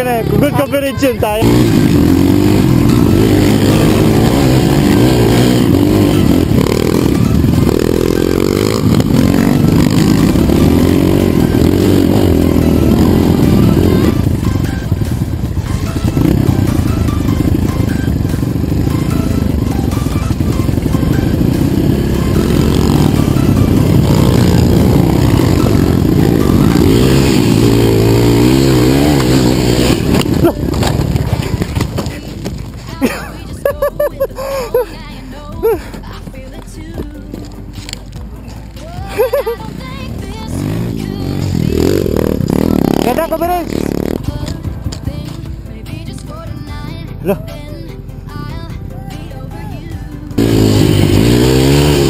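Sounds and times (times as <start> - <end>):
dirt bike engine revving: 0.0 - 34.0, 39.2 - 44.6, 50.2 - 52.0.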